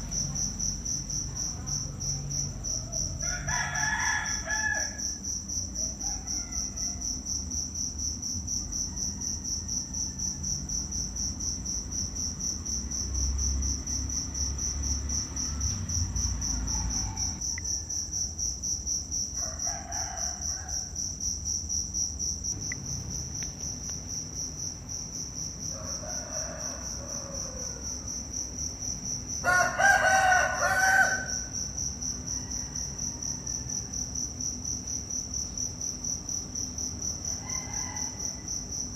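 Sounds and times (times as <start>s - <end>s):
insects chirring: 0.0s - 38.9s
rooster crowing: 2.6s - 7.4s, 8.7s - 10.9s, 16.4s - 18.3s, 19.4s - 21.0s, 25.6s - 28.2s, 29.4s - 34.2s, 37.2s - 38.8s.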